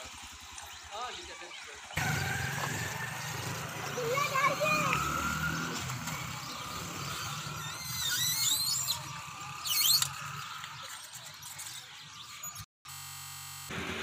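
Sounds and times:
birds chirping: 0:00.0 - 0:12.7.

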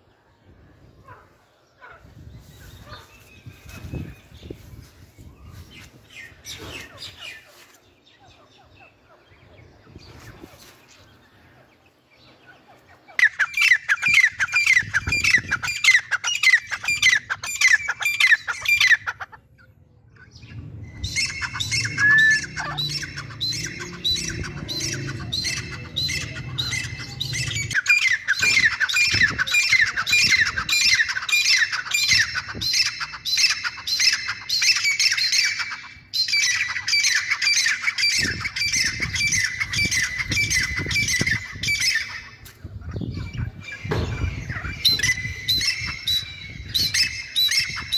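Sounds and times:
birds calling with squeaky notes: 0:01.0 - 0:47.9.

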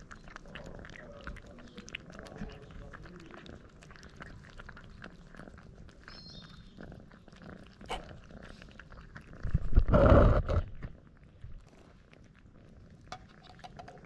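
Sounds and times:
cats chewing wet food: 0:00.0 - 0:14.0
rough burst against microphone: 0:09.7 - 0:10.7.

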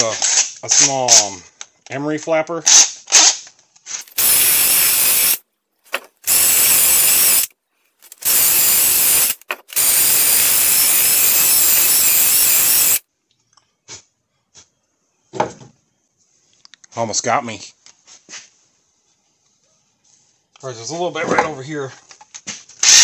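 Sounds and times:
rotary tool grinding metal: 0:04.0 - 0:05.4, 0:06.2 - 0:13.0.

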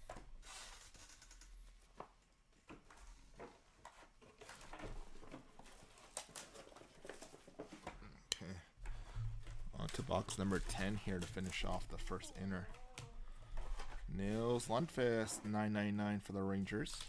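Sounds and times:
cards tapping and rustling: 0:01.9 - 0:08.0, 0:08.9 - 0:15.6.

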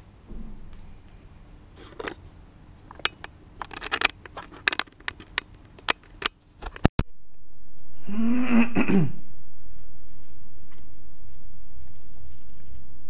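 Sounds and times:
heavy knocks: 0:00.3 - 0:02.1.

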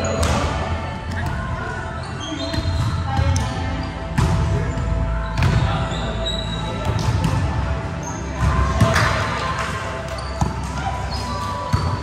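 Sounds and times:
players' voices: 0:00.0 - 0:12.0
sneaker squeaks: 0:02.0 - 0:04.0, 0:04.6 - 0:08.8, 0:10.0 - 0:12.0.

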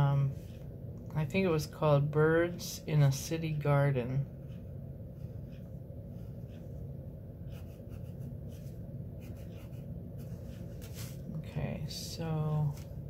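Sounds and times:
low steady hum: 0:00.0 - 0:13.0
pencil scratching on paper: 0:07.4 - 0:11.2.

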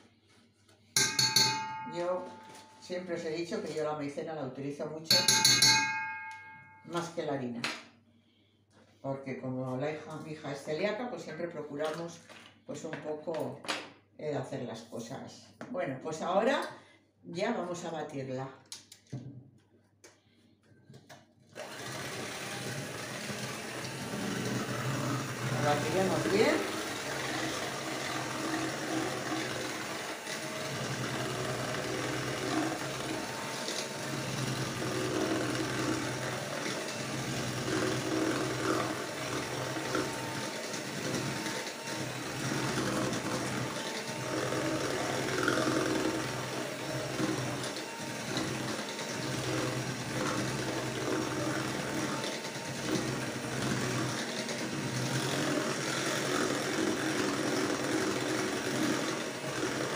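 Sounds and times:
electric mixer whisking batter: 0:21.5 - 0:59.9.

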